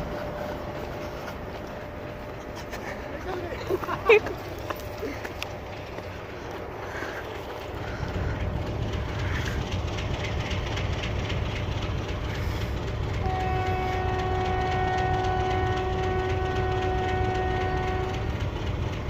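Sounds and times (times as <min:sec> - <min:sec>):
train rumbling along rails: 0:00.0 - 0:19.0
locomotive horn blast: 0:13.1 - 0:18.4.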